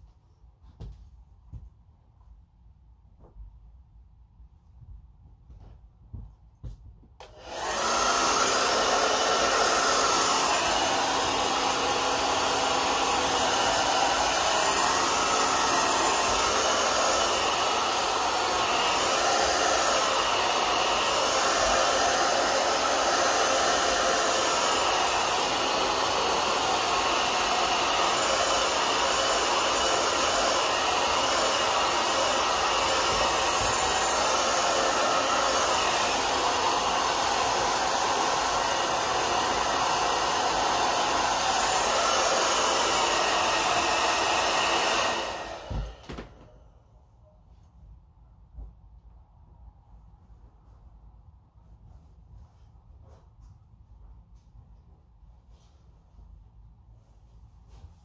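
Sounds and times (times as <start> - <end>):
hair dryer blowing: 6.6 - 47.0.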